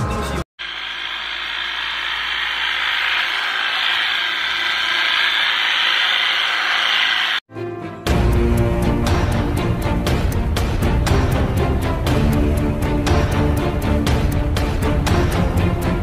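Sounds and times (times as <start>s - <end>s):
electric trimmer whirring: 0.6s - 7.5s.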